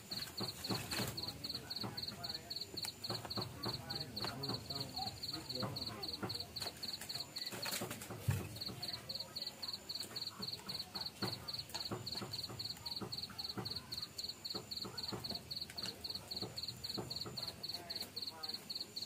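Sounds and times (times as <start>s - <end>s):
cricket chirping: 0.0s - 19.0s
stirring clicks and knocks in pot: 0.0s - 19.0s.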